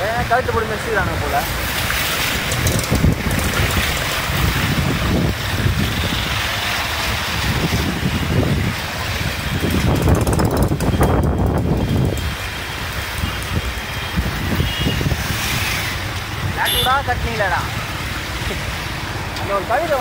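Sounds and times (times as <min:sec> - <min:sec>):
floodwater splashing and rushing: 0:00.0 - 0:20.0
vehicle engines running: 0:00.0 - 0:20.0
wind buffeting microphone: 0:02.2 - 0:16.6.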